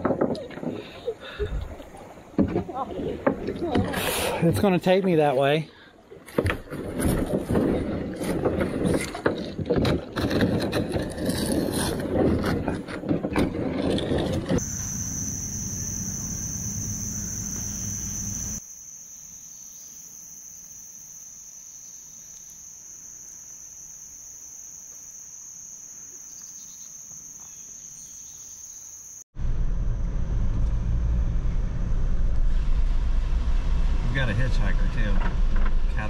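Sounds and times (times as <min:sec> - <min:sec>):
insects droning: 0:14.5 - 0:29.3
car driving from inside cabin: 0:29.4 - 0:36.0
low rumble: 0:29.4 - 0:36.0.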